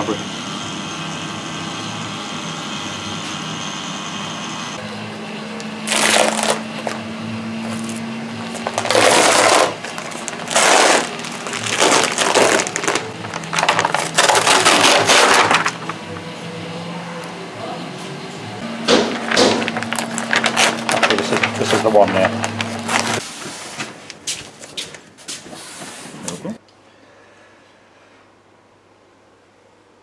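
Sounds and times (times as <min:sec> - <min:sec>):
vacuum pump humming: 0:00.0 - 0:23.3
plastic bag crinkling and tearing: 0:05.8 - 0:07.0, 0:07.6 - 0:16.0, 0:18.9 - 0:23.2.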